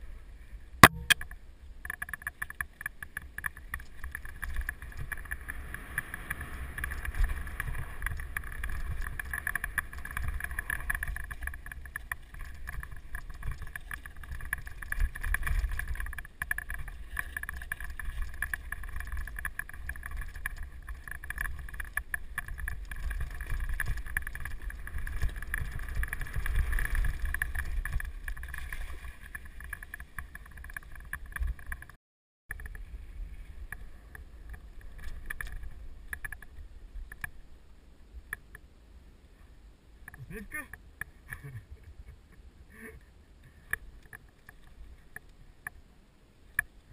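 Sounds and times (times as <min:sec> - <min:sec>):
bike tyres rattling on stones: 0:00.8 - 0:33.0, 0:33.6 - 0:37.3.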